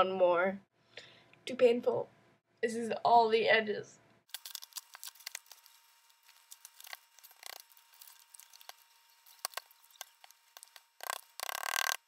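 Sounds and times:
paper rustling and crinkling: 4.3s - 11.4s.

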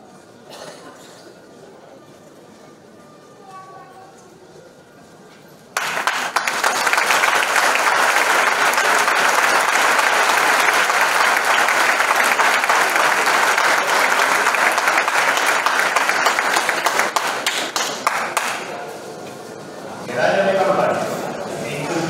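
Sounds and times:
audience applauding: 5.8s - 18.8s.

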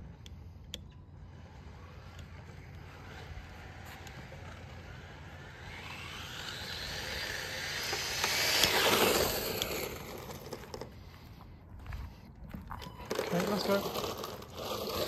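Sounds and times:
rc car electric motor whine: 1.0s - 11.0s, 13.0s - 15.0s
tyre noise on asphalt: 1.3s - 15.0s.

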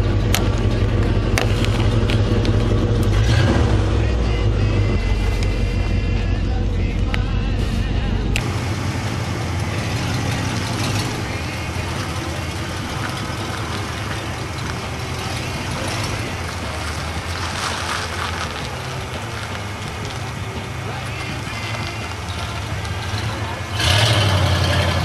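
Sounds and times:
car engine running at low revs: 0.0s - 25.0s.

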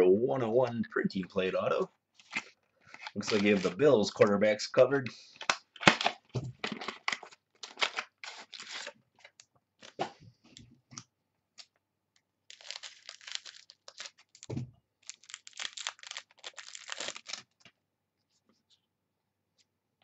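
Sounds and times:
plastic wrappers crinkling: 2.2s - 3.8s, 5.4s - 10.0s, 12.5s - 17.6s.

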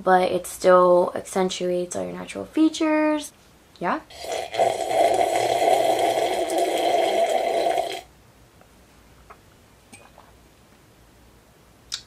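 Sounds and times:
person drinking from glass: 4.1s - 8.1s.

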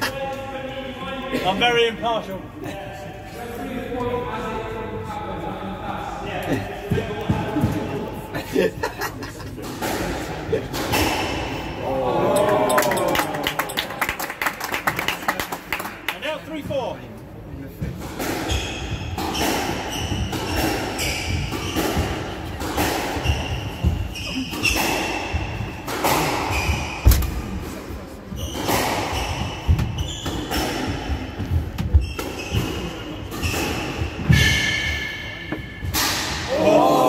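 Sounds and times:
squash ball hitting rackets and walls: 9.6s - 11.8s, 17.8s - 36.5s
shoes squeaking on wooden floor: 18.5s - 22.3s, 28.3s - 34.6s.

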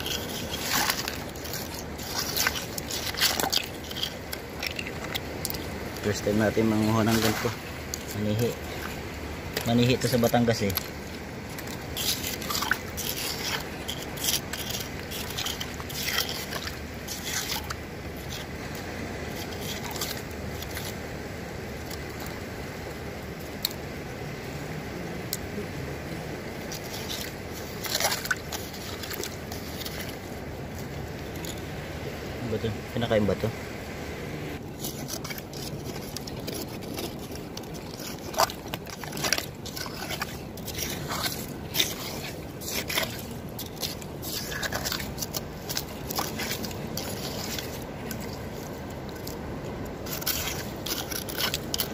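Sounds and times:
stones and shells clicking: 0.0s - 6.2s, 7.0s - 18.6s, 50.0s - 51.9s
hands scraping through wet sand: 0.0s - 10.9s, 11.5s - 20.9s, 34.6s - 49.4s, 50.0s - 51.9s
steady background noise: 0.0s - 51.9s
low rushing background: 30.5s - 34.7s.

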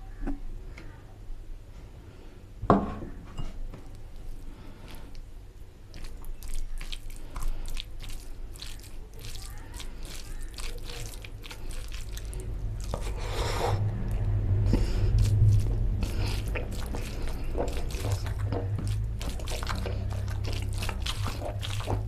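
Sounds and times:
fingers squishing rice in gravy: 3.9s - 22.0s
wet chewing and lip smacking: 3.9s - 22.0s
low hum: 12.1s - 22.0s.

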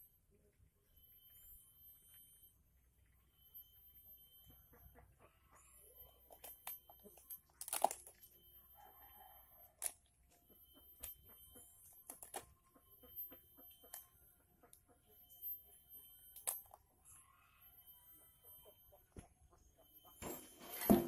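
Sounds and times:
bamboo cracking and crunching: 7.6s - 8.2s.

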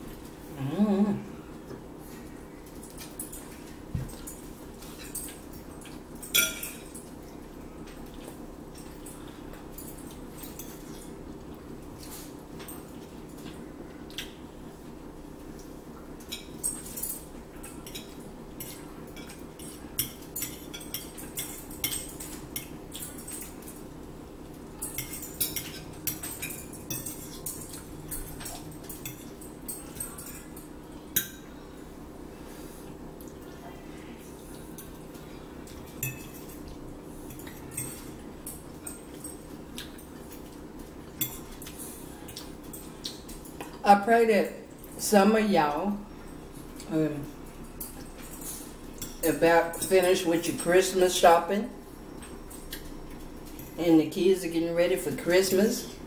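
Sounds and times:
steady low hum: 0.0s - 56.0s
forks clinking on plates: 2.7s - 7.1s, 16.2s - 23.9s, 24.7s - 31.5s, 35.6s - 43.8s.

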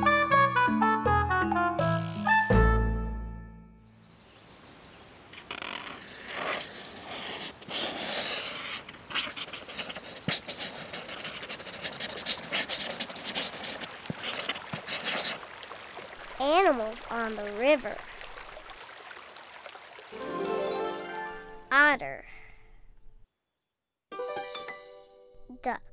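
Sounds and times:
crayon scribbling on paper: 6.4s - 15.4s.

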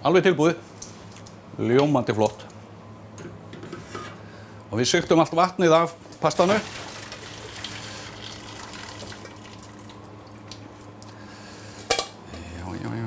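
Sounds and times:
water pouring into sink: 6.4s - 10.6s.

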